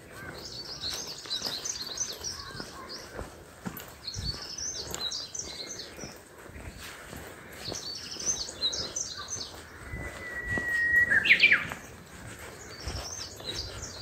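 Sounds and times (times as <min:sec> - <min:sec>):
songbirds chirping: 0:00.0 - 0:14.0
bird whistle with flourish: 0:09.9 - 0:11.8.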